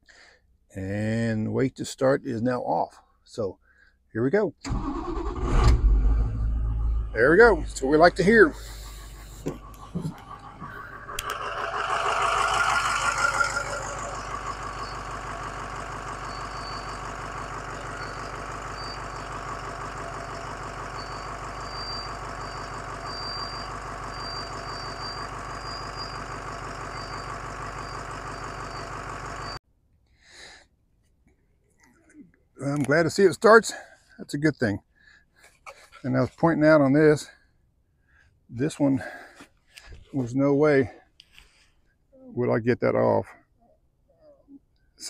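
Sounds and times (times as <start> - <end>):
diesel engine idling: 4.7 - 29.6.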